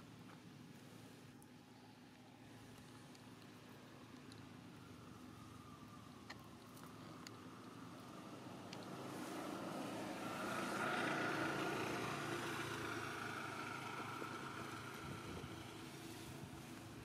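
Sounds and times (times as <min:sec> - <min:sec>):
vehicle engine passing: 0:08.0 - 0:16.8.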